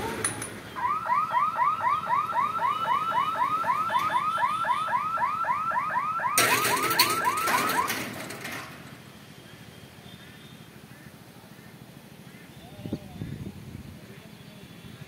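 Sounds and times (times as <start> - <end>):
level crossing electronic chirping alarm: 0.8 - 8.2.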